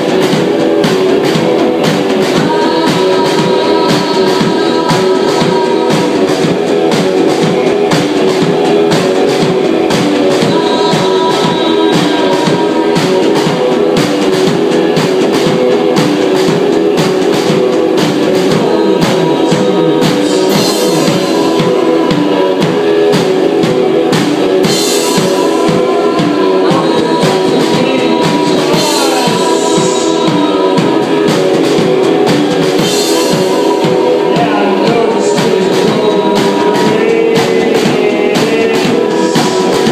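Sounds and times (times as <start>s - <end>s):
drum kit playing: 0.0s - 39.9s
electric guitar: 0.0s - 39.9s
person singing: 0.0s - 39.9s.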